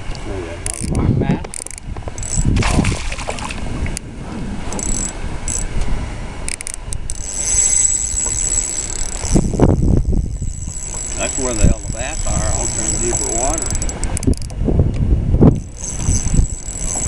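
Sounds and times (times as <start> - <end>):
wind buffeting microphone: 0.0 - 17.0
thin high whine: 4.0 - 14.4, 15.4 - 17.0.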